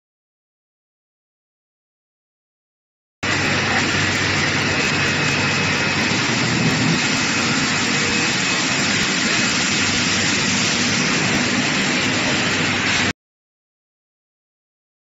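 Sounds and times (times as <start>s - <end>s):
faint high whine: 3.2s - 13.1s
low machine hum: 3.2s - 13.1s
water spray and air bubbles: 3.9s - 13.1s.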